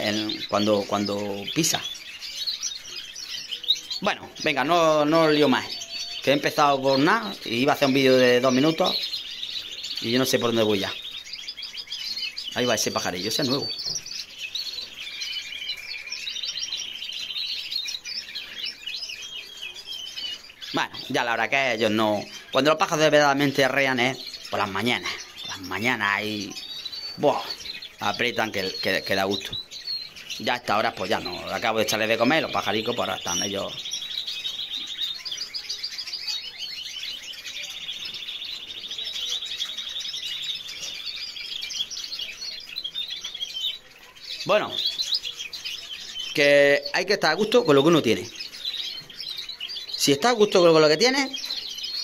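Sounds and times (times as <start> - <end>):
canary singing trills: 0.0 - 52.0.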